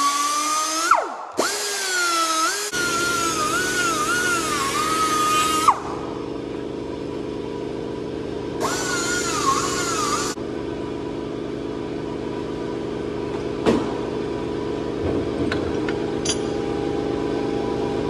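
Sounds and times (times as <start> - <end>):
air die grinder whining: 0.0 - 6.2, 8.6 - 10.4
low machine hum: 2.7 - 18.0.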